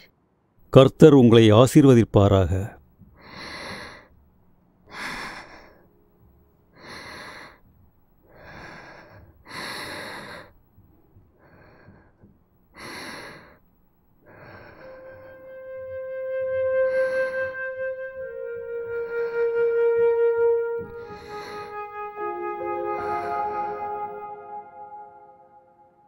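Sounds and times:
girl breathing heavily: 3.2 - 4.2, 4.9 - 5.9, 6.7 - 15.5, 16.9 - 17.6, 18.8 - 19.7, 20.8 - 22.0.

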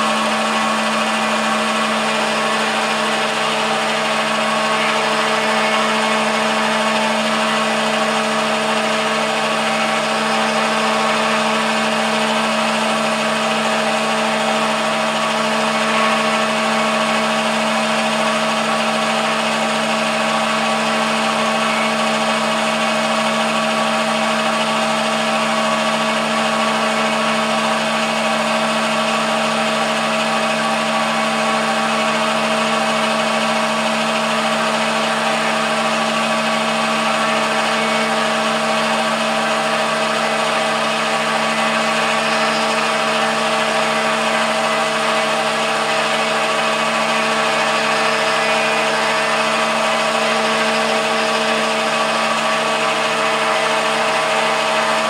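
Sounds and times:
lathe motor hum and whine: 0.0 - 55.0.

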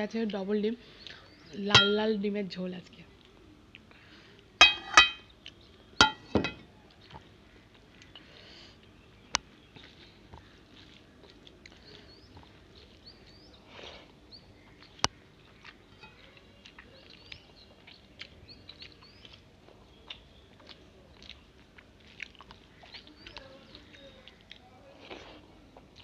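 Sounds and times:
small birds chirping faintly: 0.0 - 26.0
quiet chewing: 3.1 - 4.6, 5.3 - 6.0, 6.8 - 26.0
hand mixing rice on steel plate: 4.6 - 5.2.

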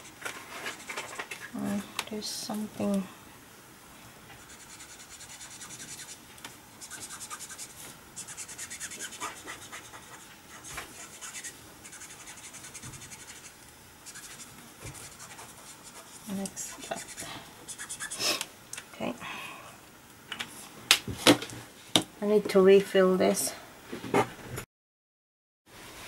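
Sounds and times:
marker nib scratching on card: 0.7 - 1.4, 4.4 - 6.2, 6.8 - 18.2.

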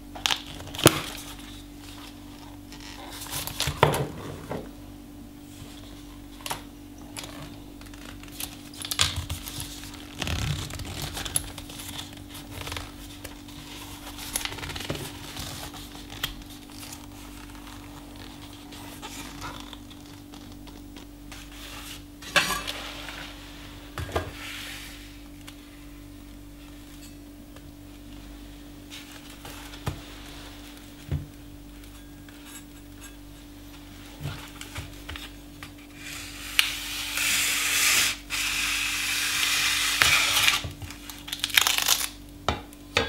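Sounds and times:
steady low hum: 0.0 - 43.0
leather rubbing and rustling: 7.3 - 22.1.

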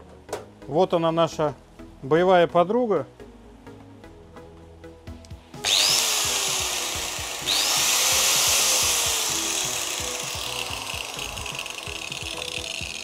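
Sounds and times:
angle grinder whining: 5.6 - 13.0.

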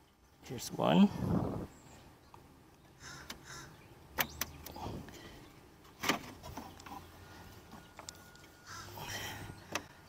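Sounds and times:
crow cawing: 3.0 - 3.8, 8.6 - 9.0.

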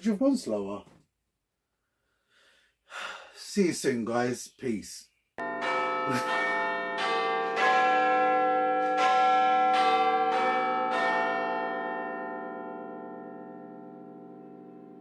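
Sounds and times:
bell-like chimes: 5.4 - 15.0.

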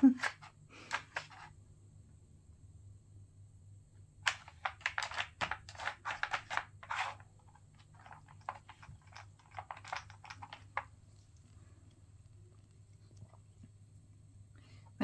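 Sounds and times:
cat toy clicking and rattling: 4.3 - 7.0, 7.8 - 10.9.

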